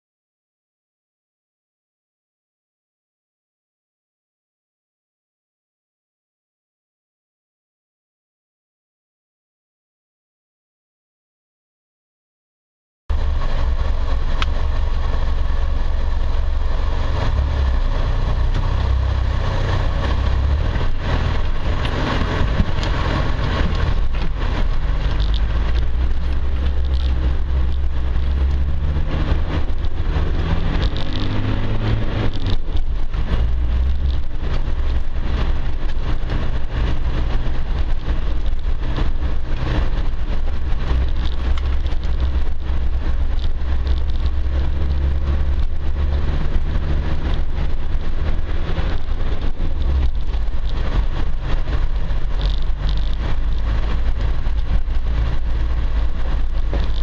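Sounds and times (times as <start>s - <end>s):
vehicle engine rumbling: 13.1s - 57.0s
rattles and knocks from rough ground: 17.2s - 57.0s.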